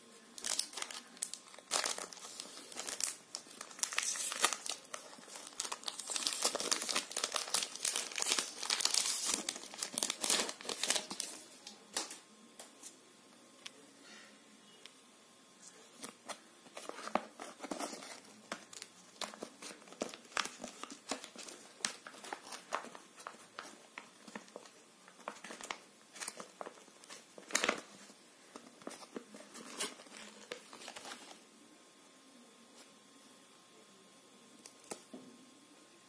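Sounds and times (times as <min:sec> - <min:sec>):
foil wrapper crinkling: 0:00.4 - 0:12.2, 0:16.0 - 0:31.4.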